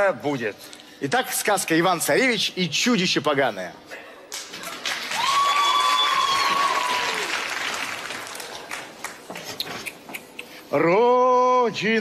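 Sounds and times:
audience applauding: 4.3s - 9.5s.

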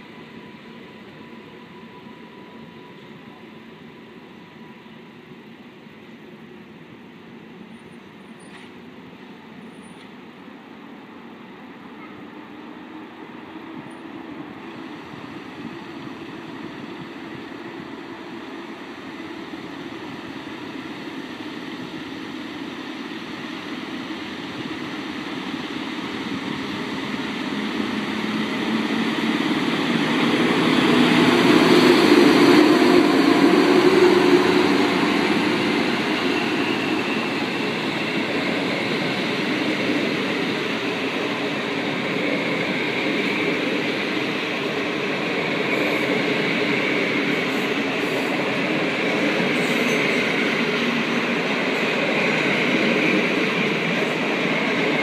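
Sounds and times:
electric locomotive passing: 0.0s - 55.0s
coaches rolling on rails: 19.5s - 55.0s.

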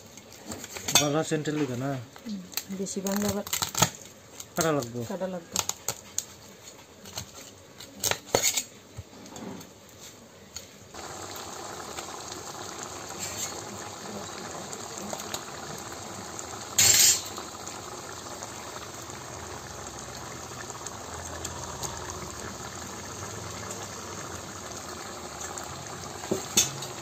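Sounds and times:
pot bubbling at a boil: 10.5s - 27.0s.

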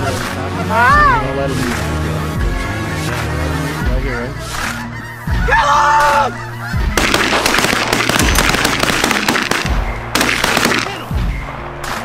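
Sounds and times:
shotgun shots: 7.0s - 11.2s.

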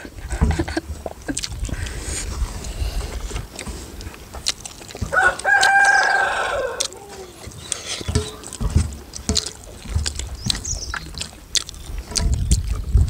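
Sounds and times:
rooster crowing: 5.1s - 7.5s
steel dishes clinking: 7.4s - 10.8s.

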